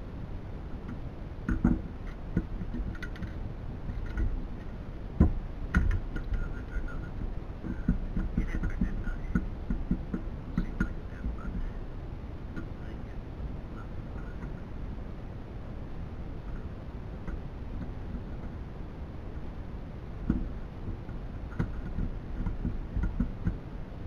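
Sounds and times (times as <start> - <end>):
tools clicking and knocking: 1.5 - 6.4.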